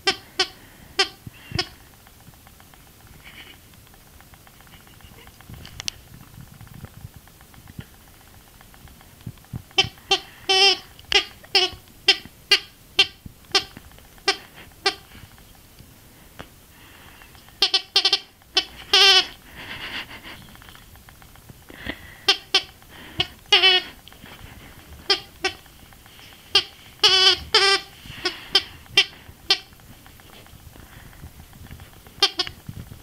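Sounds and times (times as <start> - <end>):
squeaky toy squeaking: 0.0 - 1.8, 9.8 - 15.1, 17.6 - 19.4, 22.3 - 24.0, 25.1 - 25.7, 26.5 - 29.7, 32.2 - 32.6.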